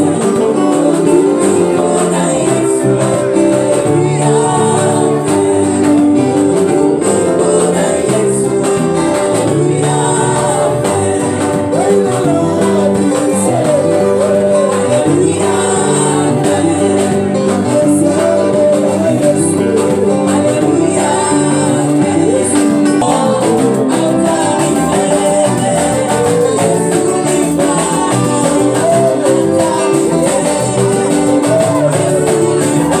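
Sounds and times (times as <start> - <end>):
backing singers: 0.0 - 33.0
band with electric guitars: 0.0 - 33.0
man singing into a microphone: 0.0 - 33.0.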